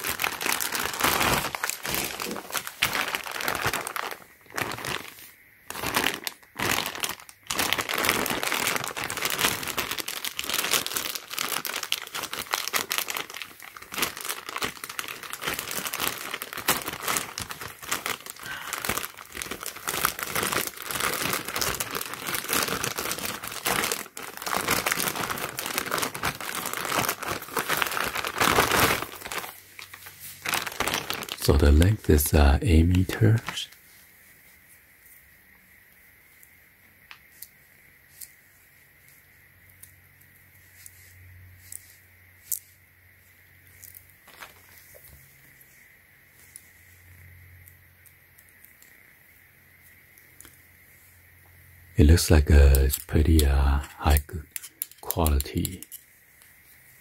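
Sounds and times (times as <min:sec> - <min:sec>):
plastic packaging crinkling: 0:00.0 - 0:33.9, 0:43.7 - 0:45.3, 0:52.2 - 0:56.0.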